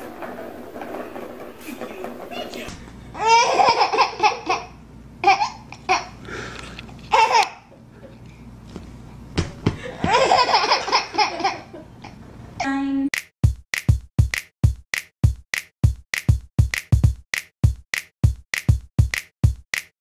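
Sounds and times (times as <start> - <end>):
baby laughing: 3.2 - 6.2, 7.1 - 7.8, 9.9 - 12.2
electronic music with drum beat: 13.2 - 19.9.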